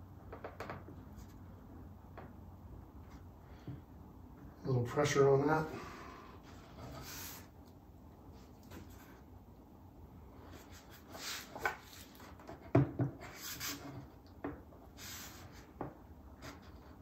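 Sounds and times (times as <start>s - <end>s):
rubbing and scraping on wood: 5.5s - 7.6s, 10.4s - 14.2s.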